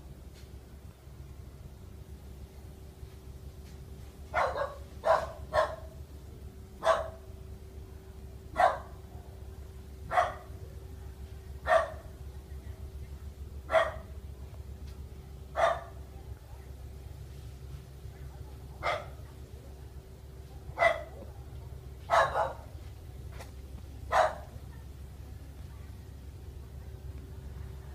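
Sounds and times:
dog barking: 4.3 - 6.0, 6.8 - 7.3, 8.5 - 9.1, 10.1 - 10.6, 11.6 - 12.1, 13.6 - 14.1, 15.5 - 16.0, 18.8 - 19.3, 20.7 - 21.3, 22.0 - 22.8, 24.1 - 24.6.

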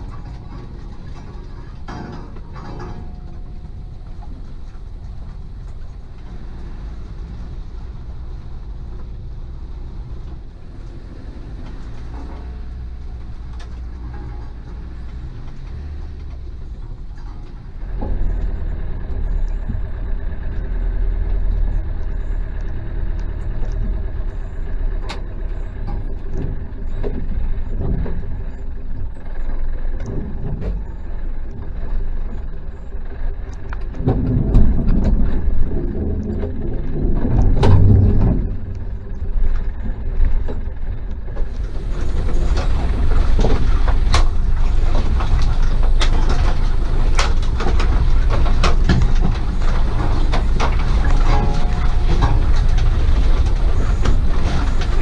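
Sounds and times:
vehicle engine running: 0.0 - 55.0
knocks and scrapes: 33.7 - 55.0.

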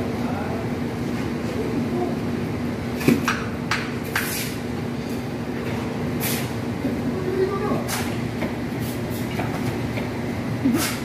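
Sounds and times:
trowel scraping on concrete: 4.1 - 4.6.

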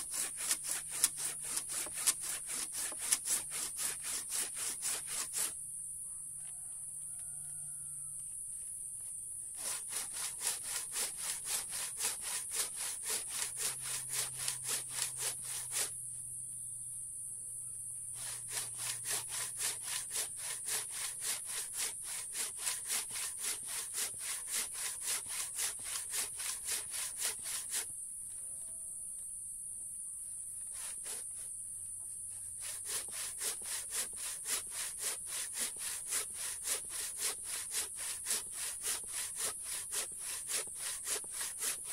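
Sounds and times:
hand saw cutting wood: 0.0 - 5.6, 9.5 - 16.0, 18.2 - 27.9, 30.6 - 31.5, 32.3 - 41.9.

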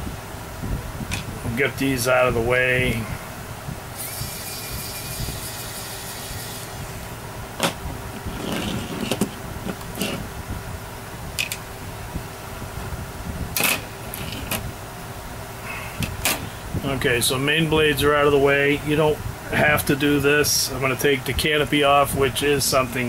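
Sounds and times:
background hum: 0.0 - 23.0.

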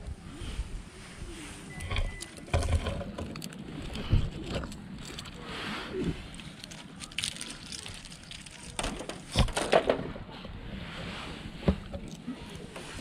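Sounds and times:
pine cones clattering on metal: 6.3 - 10.0.

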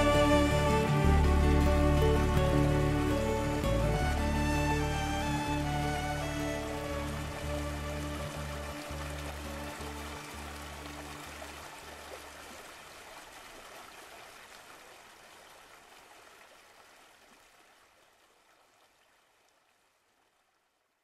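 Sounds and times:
low sustained music notes: 0.0 - 12.2
small waterfall rushing: 0.0 - 20.1.

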